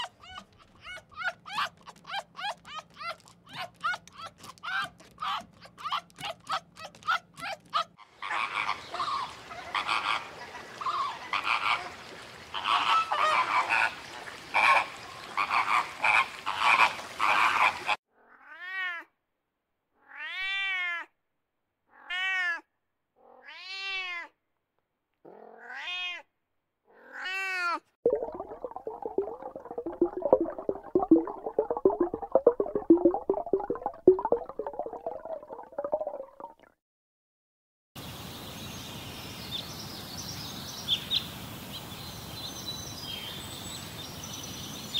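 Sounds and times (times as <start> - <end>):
cat meowing: 21.9 - 22.6
dense noise: 28.1 - 36.2.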